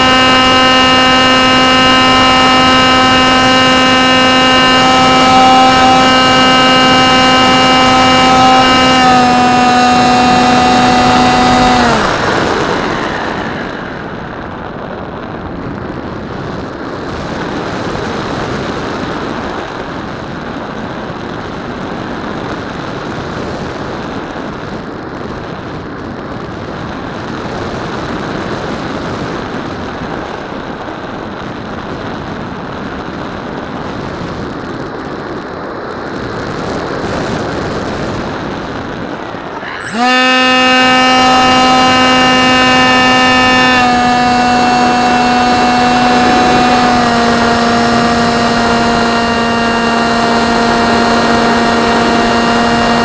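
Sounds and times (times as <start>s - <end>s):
electric motor whining: 0.0s - 14.7s, 39.3s - 53.0s
wind rushing over airframe: 1.3s - 31.3s.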